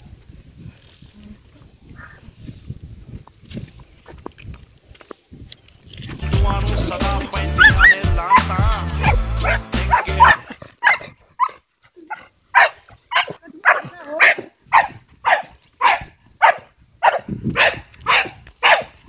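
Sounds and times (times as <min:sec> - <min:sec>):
dogs barking: 0:07.5 - 0:19.0.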